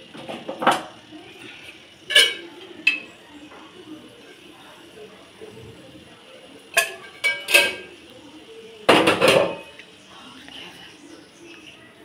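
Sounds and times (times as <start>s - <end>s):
metal pots clanking: 0.0s - 1.0s, 1.6s - 3.2s, 6.7s - 8.0s, 8.9s - 9.8s.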